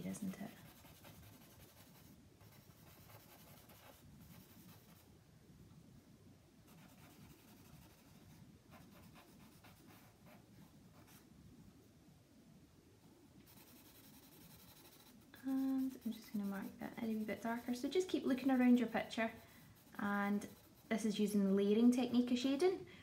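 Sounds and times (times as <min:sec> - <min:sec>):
charcoal scratching on paper: 0:00.0 - 0:05.0, 0:06.7 - 0:10.4, 0:13.5 - 0:21.5.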